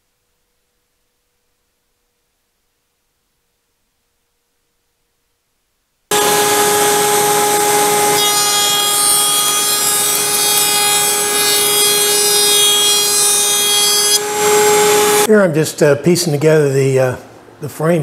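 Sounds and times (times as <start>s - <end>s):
router high whine: 6.1s - 15.3s.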